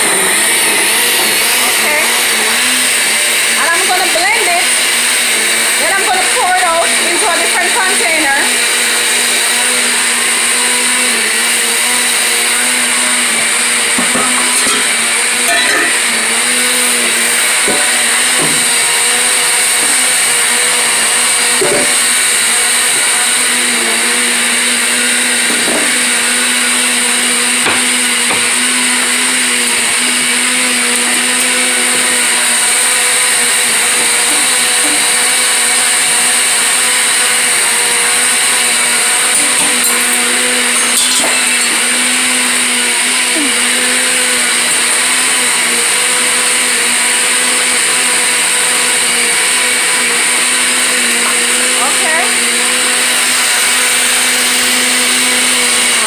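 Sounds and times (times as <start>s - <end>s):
blender motor running: 0.0s - 56.0s.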